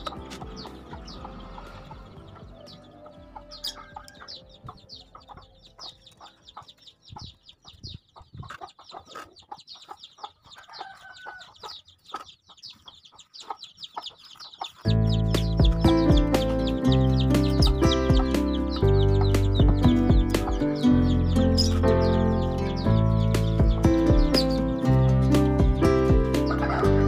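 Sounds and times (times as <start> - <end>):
loud music: 0.0 - 4.3, 14.9 - 27.0
chicks peeping: 0.0 - 27.0.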